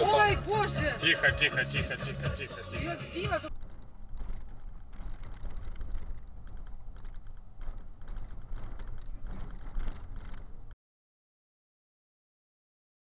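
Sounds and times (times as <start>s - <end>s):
car road and engine rumble: 0.0s - 10.8s
small clicks and rattles: 3.5s - 10.8s.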